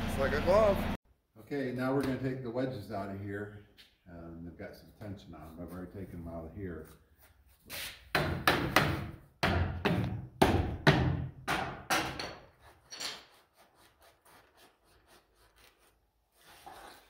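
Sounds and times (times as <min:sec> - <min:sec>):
hammer knocking wooden wedges: 0:08.1 - 0:12.5.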